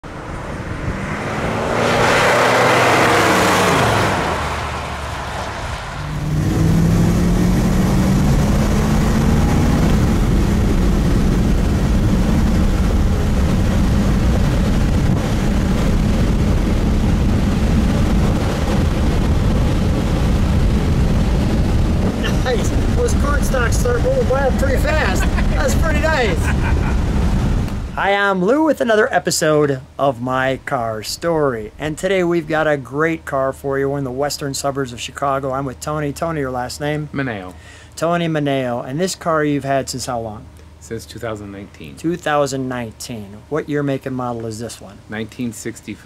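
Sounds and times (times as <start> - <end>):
car engine driving past: 0.0 - 27.9
road and wind noise: 0.0 - 46.0
engine droning at cruising speed: 0.1 - 27.9.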